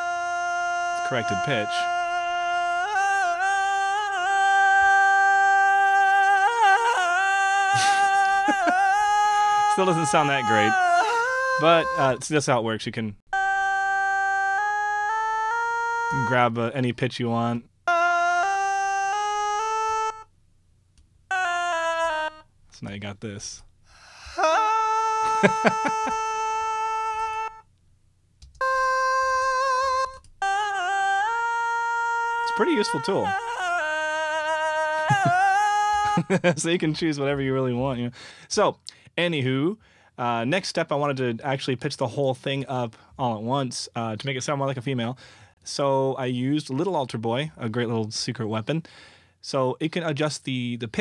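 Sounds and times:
man singing wordless vocal line: 0.0 - 12.7, 13.3 - 17.0, 17.9 - 20.2, 21.3 - 22.4, 24.3 - 27.6, 28.6 - 40.6
singer breathing: 7.7 - 8.5, 23.8 - 24.5, 38.1 - 39.2, 39.8 - 40.2, 45.2 - 45.6, 48.8 - 49.4.

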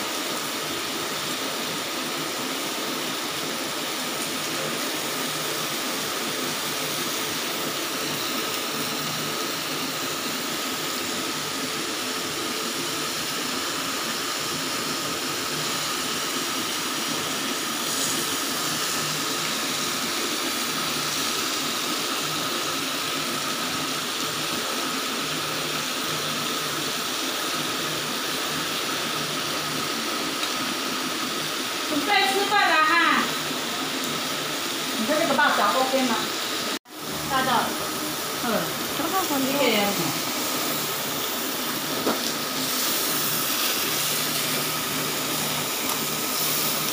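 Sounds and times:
food sizzling on griddle: 0.0 - 46.9.

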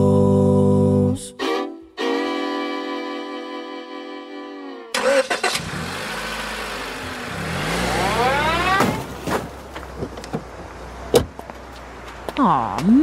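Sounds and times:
car engine running: 5.0 - 12.3
car crash: 6.6 - 10.5
rising whine: 6.7 - 8.9.

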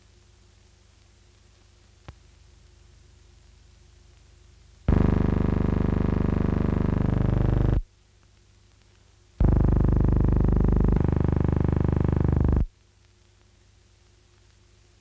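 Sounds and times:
loud buzzing tone: 4.9 - 7.8, 9.4 - 12.7.

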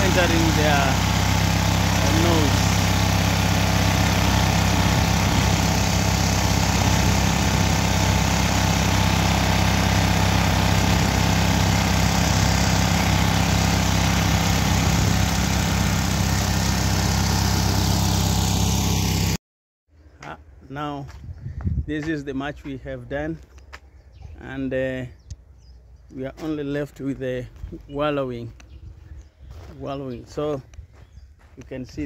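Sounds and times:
grain mill droning and grinding: 0.0 - 19.4.

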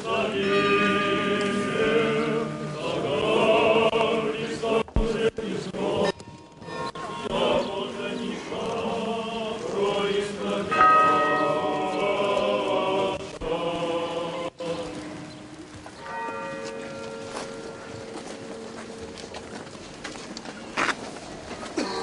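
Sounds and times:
church bells ringing: 0.0 - 4.5, 10.2 - 20.2
choir chanting: 0.0 - 15.4.

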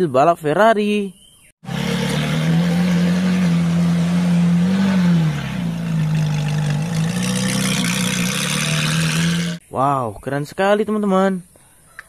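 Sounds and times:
sports car engine running: 1.6 - 9.6.

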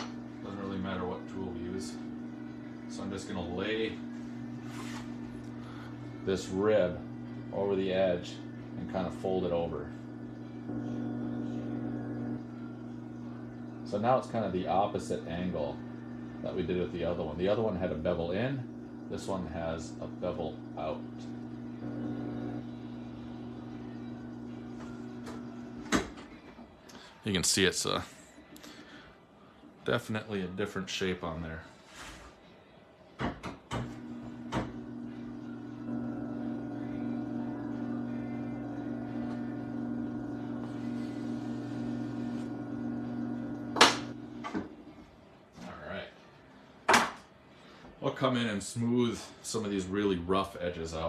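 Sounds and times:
pottery wheel motor humming: 0.0 - 26.6, 33.7 - 46.0.

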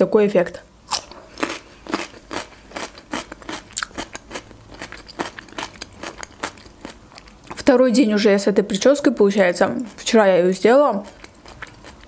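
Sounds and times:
chewing crisp cucumber: 0.9 - 7.6, 9.7 - 10.2, 10.9 - 12.0.

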